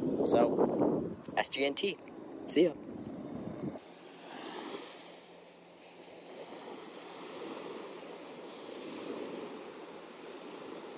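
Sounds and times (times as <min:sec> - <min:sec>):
small waves washing on beach: 0:03.8 - 0:10.9.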